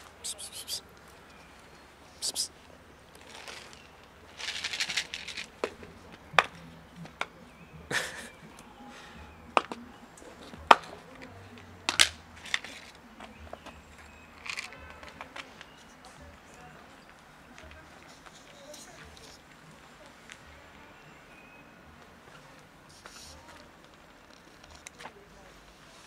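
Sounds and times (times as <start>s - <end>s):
cats crunching dry kibble: 3.1s - 7.2s, 14.4s - 15.8s.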